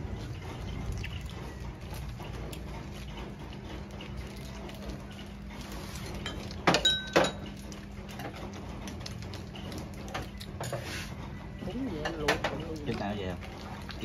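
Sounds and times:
tableware clinks: 6.2 - 7.5.

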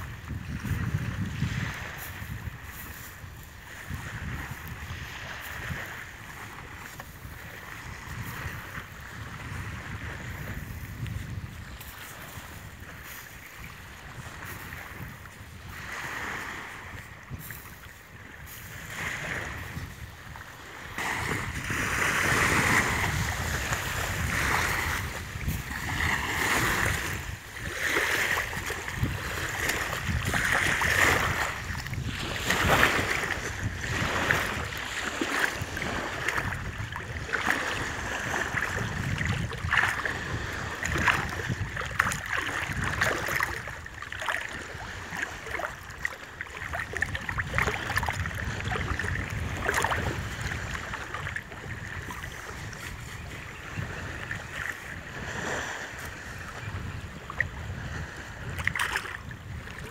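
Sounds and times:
small waves lapping: 0.0 - 59.9
wind buffeting microphone: 0.0 - 59.9.

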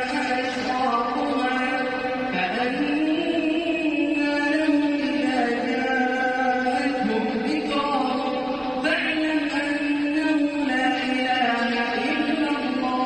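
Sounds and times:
man chanting prayer: 0.0 - 13.0.

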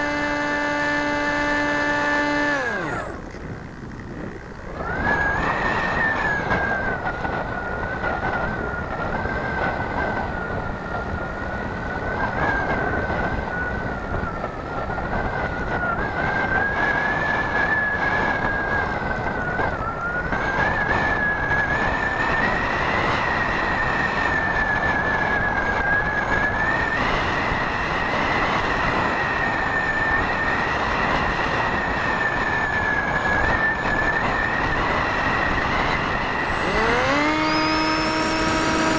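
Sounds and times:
model plane motor whining: 0.0 - 38.9
rushing air noise: 17.3 - 38.9.

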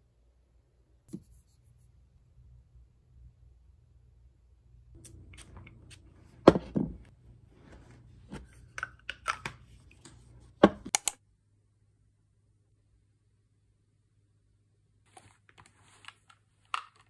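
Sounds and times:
objects knocking on tabletop: 6.4 - 7.1.

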